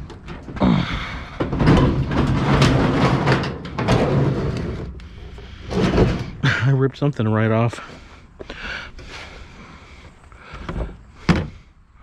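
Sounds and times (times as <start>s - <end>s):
scrap scraping and rattling up ramp: 0.0s - 6.7s.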